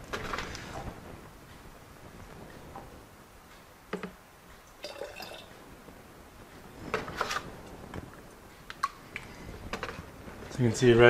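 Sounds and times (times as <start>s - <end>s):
liquid trickling into cup: 4.7s - 5.5s.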